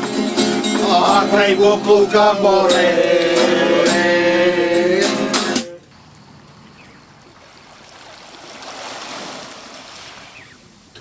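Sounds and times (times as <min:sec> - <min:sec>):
strummed guitar chords: 0:00.0 - 0:05.8.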